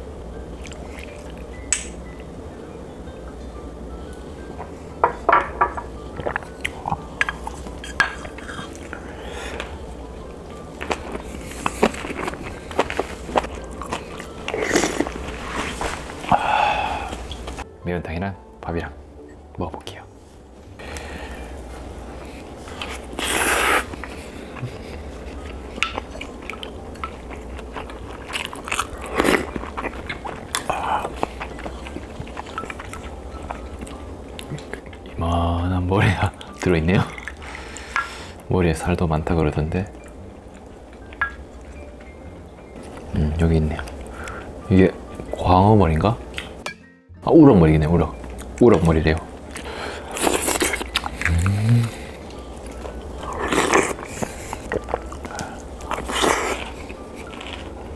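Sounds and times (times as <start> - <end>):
chewing: 10.8 - 16.1, 22.3 - 35.2, 36.3 - 38.2, 49.5 - 57.9.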